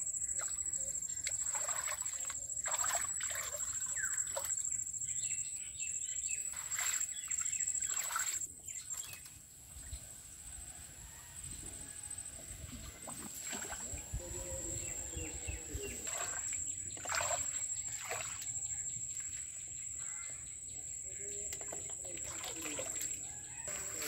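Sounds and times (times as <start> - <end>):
birds chirping: 0.1 - 9.4, 12.8 - 24.0
floodwater splashing and trickling: 0.3 - 4.8, 6.4 - 9.4, 12.7 - 20.3, 21.3 - 24.0.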